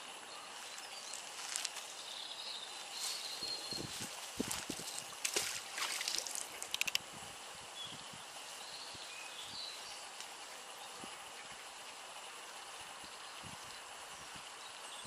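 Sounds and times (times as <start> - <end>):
outdoor wash: 0.0 - 15.0
water splashing: 4.3 - 7.0
quick clicks: 6.6 - 7.0.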